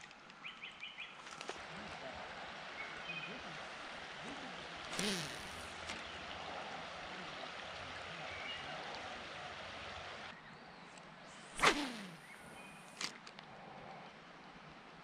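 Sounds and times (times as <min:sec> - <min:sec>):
creek water rushing: 0:01.6 - 0:10.3
fishing rod swishing: 0:04.9 - 0:05.7, 0:11.6 - 0:12.3
short sharp snap: 0:11.6 - 0:12.2.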